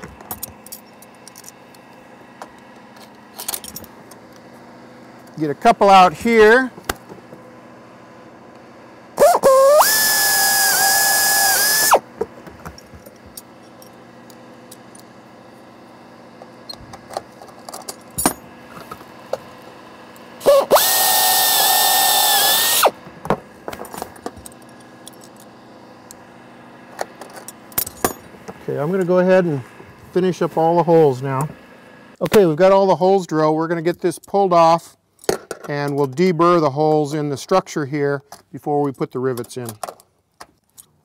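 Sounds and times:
air drill whining through metal: 9.2s - 12.1s, 20.4s - 23.1s.

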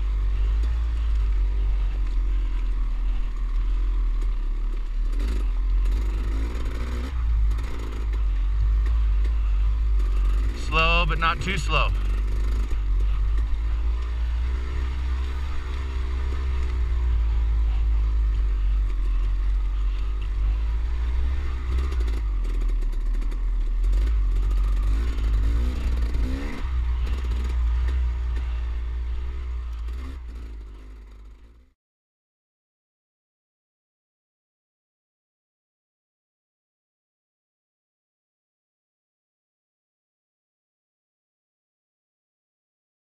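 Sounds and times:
dirt bike engine running: 0.0s - 31.7s.

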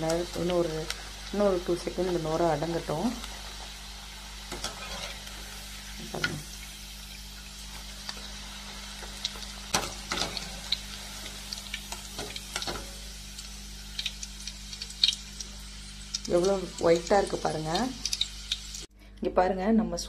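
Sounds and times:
potatoes sizzling in hot oil: 0.0s - 18.9s
strainer scraping against pan: 4.6s - 5.2s.

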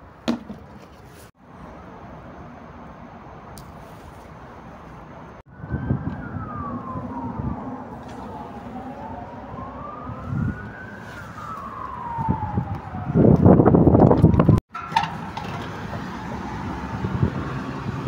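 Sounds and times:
rustling and handling noise: 0.4s - 1.4s, 10.4s - 12.0s
siren wailing: 5.5s - 14.6s.

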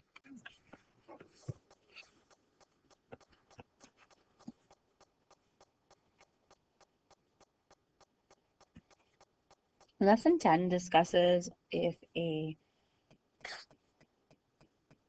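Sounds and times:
faint ticks: 1.5s - 10.0s.

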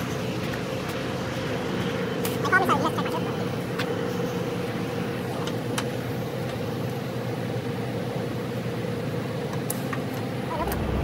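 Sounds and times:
diesel truck engine idling: 10.4s - 11.0s.

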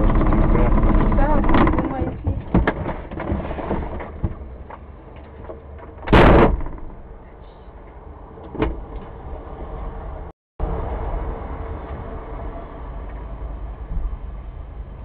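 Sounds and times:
vehicle door slamming: 6.1s - 7.0s.

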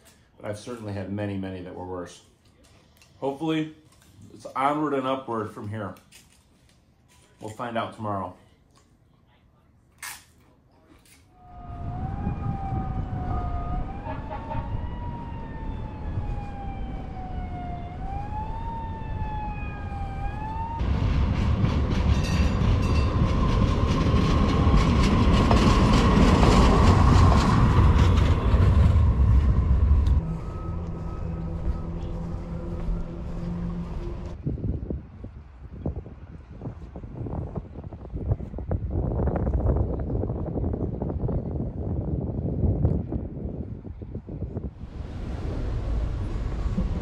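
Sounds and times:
wailing tone falling and rising: 11.3s - 20.9s, 22.3s - 34.4s
low rumble: 11.4s - 35.4s, 43.7s - 47.0s
light-rail train on tracks: 12.5s - 42.7s, 43.7s - 47.0s.

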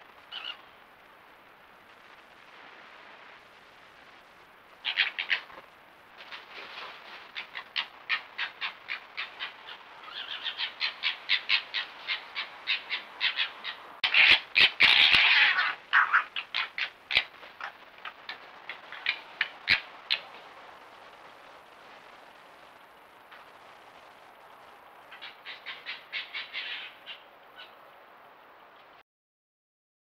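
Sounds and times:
foxes chattering squabble: 0.3s - 0.7s, 4.8s - 5.7s, 6.6s - 20.9s, 25.1s - 27.8s
foxes yelping: 4.8s - 5.6s, 6.7s - 20.4s, 25.1s - 27.8s.

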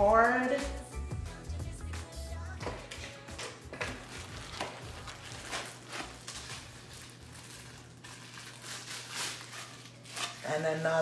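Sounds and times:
hands rustling in packaging: 3.8s - 10.5s.

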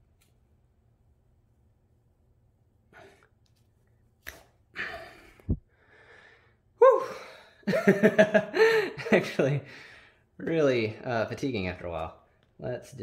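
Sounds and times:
person sighing: 4.7s - 7.6s
person breathing out hard: 4.8s - 7.6s.

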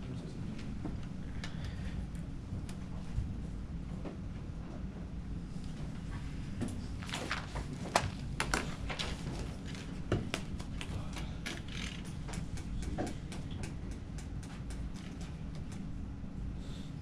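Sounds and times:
ventilation hum: 0.0s - 17.0s
clicks taps and rustles of handling: 6.6s - 16.0s.

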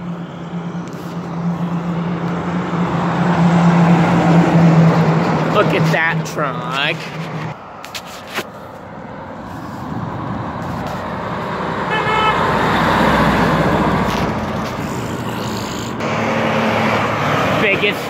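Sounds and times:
truck driving past: 0.0s - 7.8s, 8.6s - 18.0s
short horn toot: 11.9s - 12.4s.

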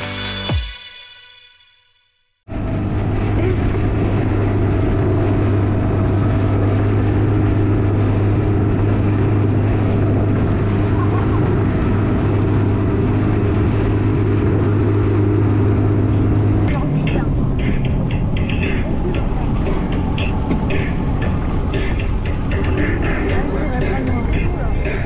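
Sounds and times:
outboard motor droning: 2.5s - 25.0s.

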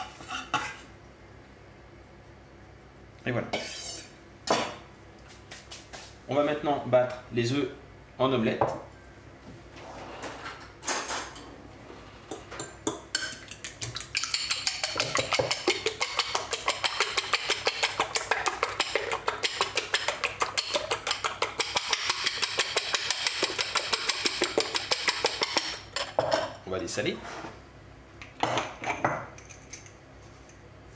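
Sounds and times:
whisk clicking against glass bowl: 12.6s - 25.8s.

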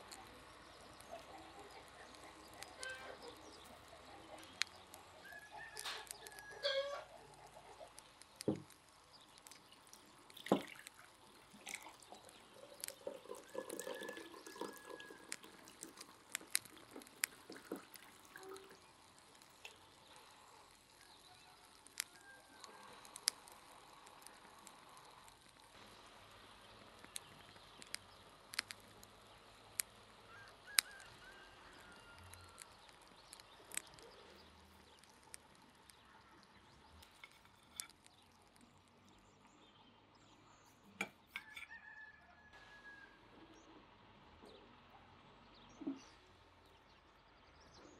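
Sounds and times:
faint bird chirps: 0.0s - 10.3s, 11.0s - 43.8s
sharp ticks and clicks: 0.0s - 40.3s
faint hiss: 15.2s - 41.0s.

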